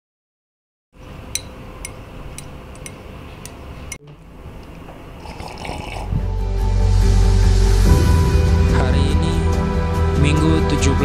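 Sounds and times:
music: 0:06.0 - 0:11.0.

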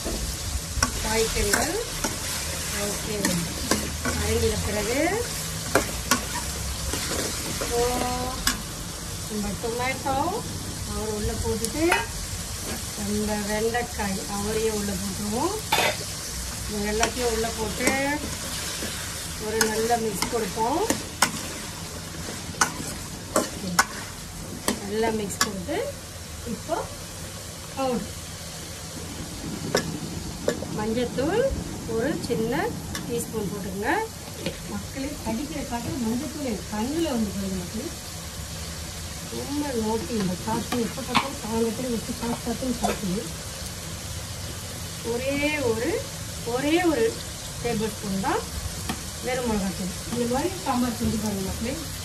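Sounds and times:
vegetables sizzling in oil: 0:00.0 - 0:52.0
ladle scraping a pan: 0:17.8 - 0:24.8.

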